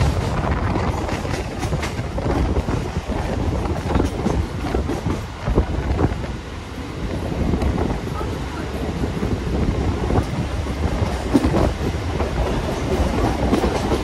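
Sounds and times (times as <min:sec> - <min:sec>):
train rumbling along track: 0:00.0 - 0:14.0
wheels clattering on rails: 0:00.0 - 0:14.0.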